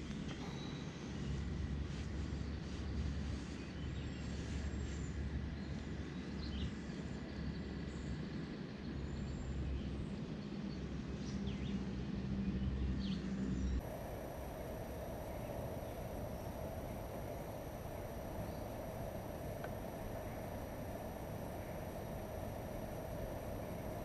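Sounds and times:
faint bird chirps: 0.0s - 1.4s, 13.0s - 24.0s
low outdoor rumble: 0.0s - 24.0s
light hiss: 13.8s - 24.0s.

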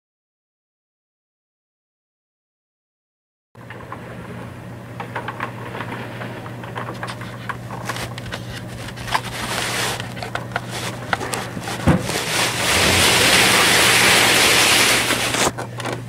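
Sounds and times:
toy truck rolling over carpet: 5.0s - 15.6s.

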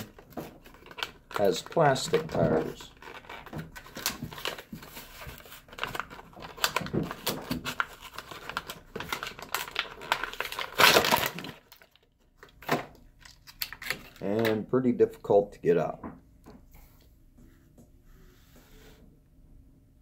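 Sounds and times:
plastic crinkling with clicks: 0.0s - 14.7s.

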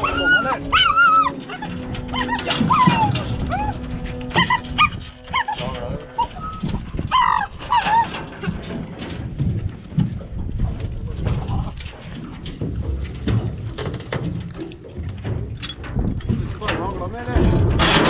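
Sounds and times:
dogs yelping: 0.0s - 8.7s
knocks and clatter on metal boat: 0.0s - 18.0s
low rumble: 0.0s - 18.0s.

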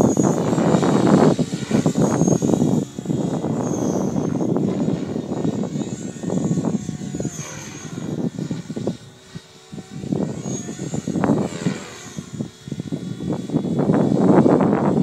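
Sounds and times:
rc helicopter rotor whine: 0.0s - 15.0s
wind buffeting microphone: 0.0s - 15.0s.

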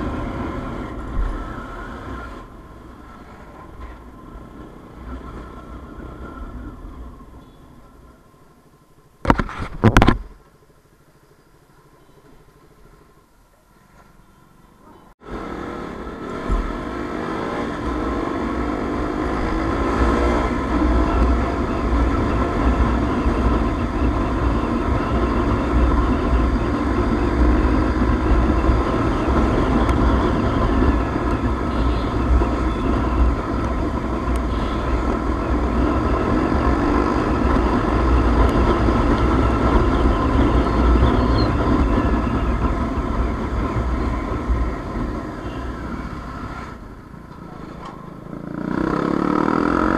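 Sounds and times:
motorcycle engine running: 15.2s - 49.9s.

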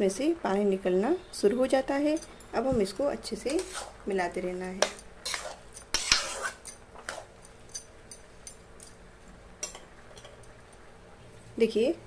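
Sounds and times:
spatula scraping in a pan: 3.4s - 4.2s, 4.8s - 7.4s.

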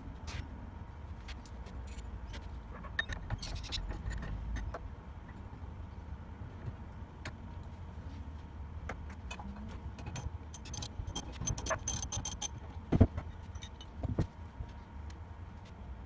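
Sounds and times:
light metallic clinks and rattles: 10.0s - 12.6s.

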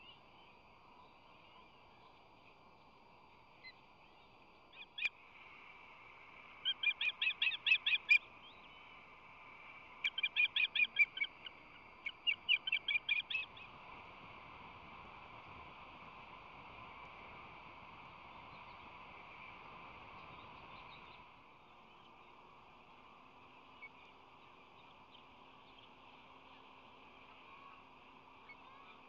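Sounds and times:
osprey whistled chirps: 3.6s - 5.2s, 6.6s - 8.9s, 10.0s - 13.7s.

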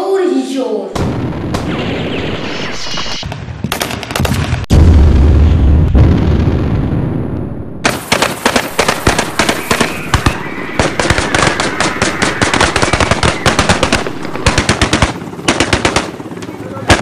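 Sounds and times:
deep explosion rumble: 1.0s - 15.0s
rapid gunfire: 7.8s - 17.0s.

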